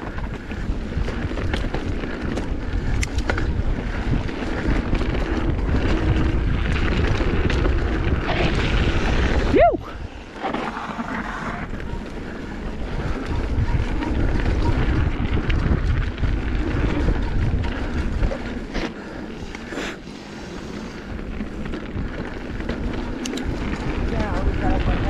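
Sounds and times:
bike tyres on dirt trail: 0.0s - 25.0s
wind on microphone: 0.0s - 25.0s.

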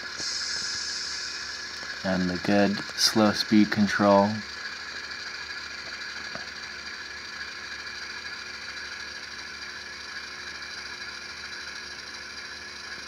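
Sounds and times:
diesel engine sound from small speaker: 0.0s - 13.0s
model motor and gears whirring: 0.0s - 13.0s.

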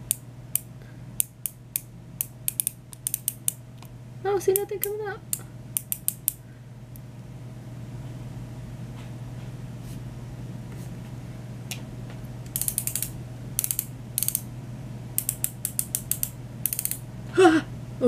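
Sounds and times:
pen ratchet clicks: 0.0s - 3.6s, 5.8s - 6.4s, 12.5s - 14.4s, 15.2s - 17.0s.

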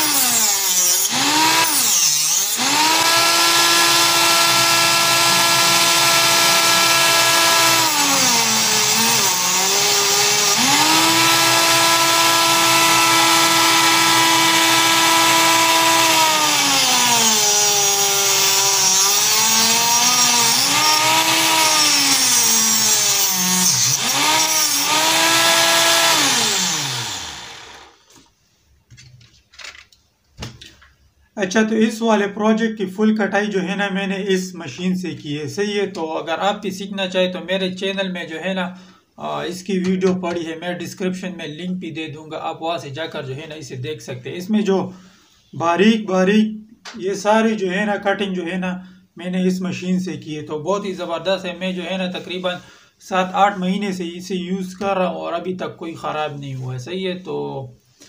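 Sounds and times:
small table saw motor whining: 0.0s - 28.0s.

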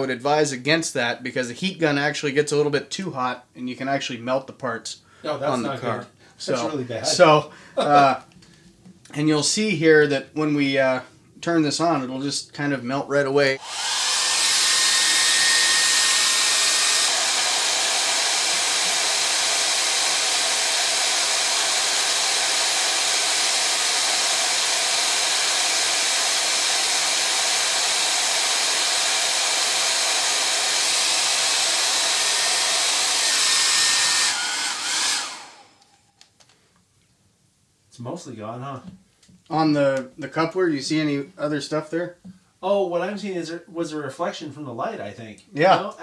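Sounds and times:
hair dryer blowing air: 13.6s - 36.0s.

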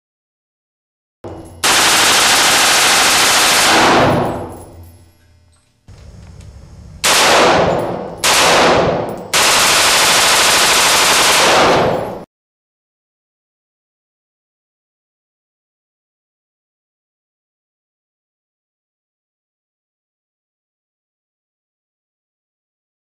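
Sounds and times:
rifle firing rapid shots with echo: 1.3s - 4.8s, 7.0s - 12.2s.

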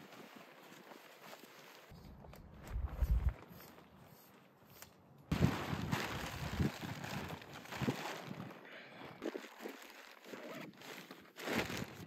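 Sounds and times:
tent fabric rustling: 0.0s - 2.1s, 5.3s - 8.6s, 9.2s - 12.0s.

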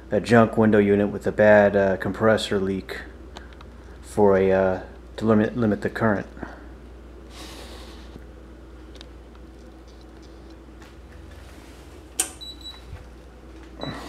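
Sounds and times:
sharp click: 12.2s - 12.4s.

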